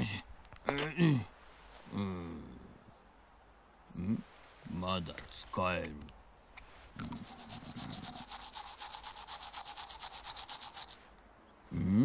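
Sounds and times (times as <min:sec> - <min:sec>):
toothbrush scrubbing teeth: 0:07.0 - 0:11.1.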